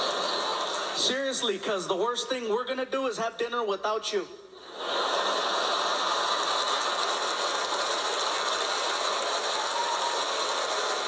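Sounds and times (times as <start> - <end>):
audience applauding: 0.0 - 1.1, 4.9 - 11.0.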